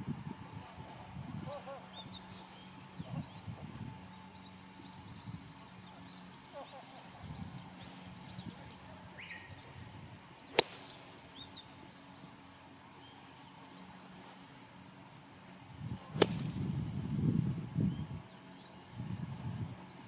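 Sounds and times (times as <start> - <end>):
birds chirping faintly: 0.0 - 17.1, 17.7 - 20.0
golf club hitting bunker sand: 10.5 - 11.0, 16.1 - 16.8.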